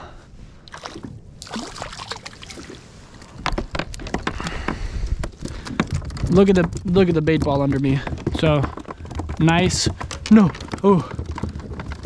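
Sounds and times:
clicks and knocks on kayak: 3.2s - 12.0s.

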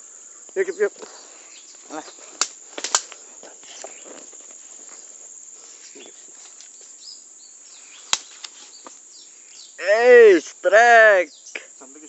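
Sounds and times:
faint bird chirps: 0.0s - 2.2s, 5.6s - 9.8s, 11.2s - 12.0s
insects buzzing: 0.0s - 12.0s.

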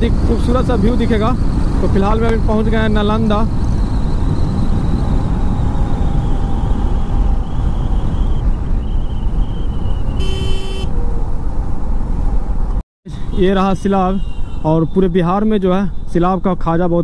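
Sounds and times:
wind rush: 0.0s - 12.8s
motorcycle engine and road noise: 0.0s - 17.0s
vehicle horn: 10.2s - 10.9s.

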